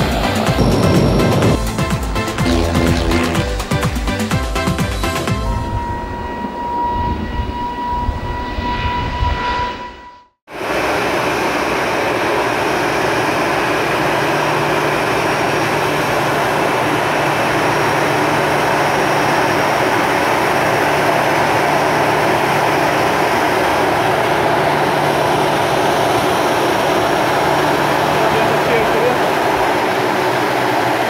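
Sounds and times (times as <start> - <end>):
jet engines rushing: 0.0 - 3.6
low steady hum: 0.6 - 1.7, 2.4 - 3.5.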